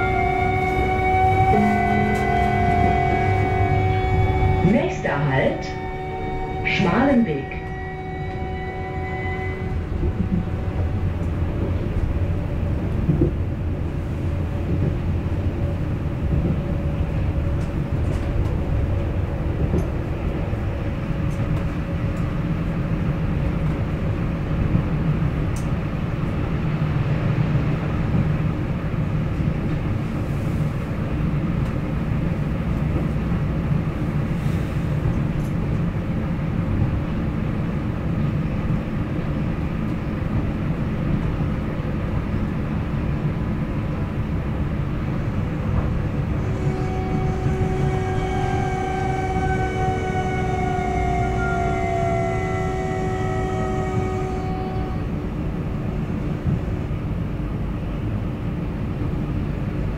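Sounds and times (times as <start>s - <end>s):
train wheels rumbling on rail: 0.0s - 59.9s
click: 25.5s - 25.7s.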